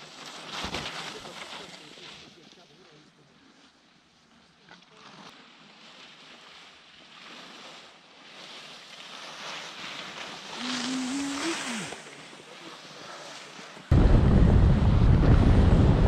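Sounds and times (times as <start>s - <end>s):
skis scraping over snow: 6.1s - 13.9s
wind on microphone: 13.9s - 16.0s.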